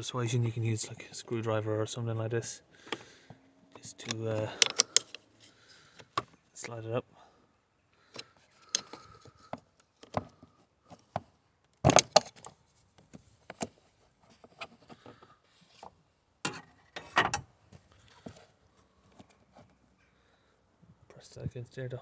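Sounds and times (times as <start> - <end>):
screwdriver clicking and scraping metal: 3.8 - 5.5.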